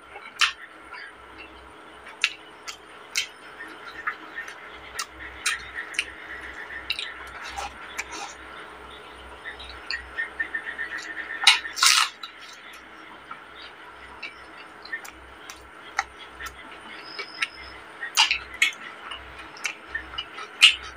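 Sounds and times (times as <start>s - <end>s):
fingers squishing rice on a plate: 2.0s - 12.9s, 13.6s - 20.9s
wet chewing and smacks: 2.2s - 3.3s, 4.4s - 8.4s, 14.2s - 20.9s.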